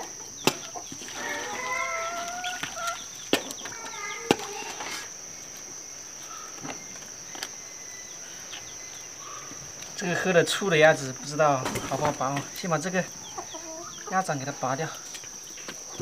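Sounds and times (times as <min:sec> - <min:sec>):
chickens clucking: 0:00.0 - 0:07.5, 0:11.3 - 0:16.0.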